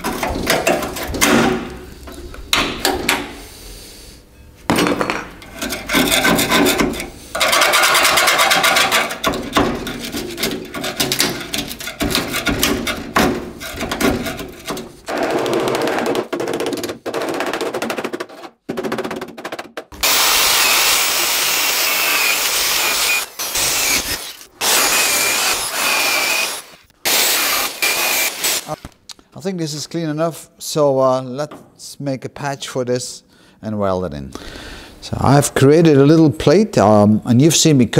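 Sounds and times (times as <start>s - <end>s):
screwdriver scraping rust off metal: 5.4s - 15.1s, 20.0s - 28.9s
small power tool whining: 20.0s - 28.9s.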